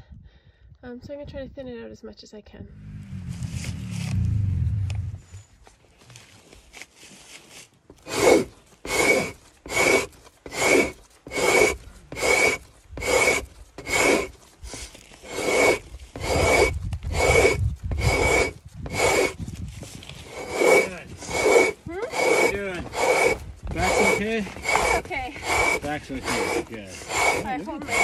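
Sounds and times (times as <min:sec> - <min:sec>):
scraper rasping on frozen hide: 0:07.5 - 0:28.0.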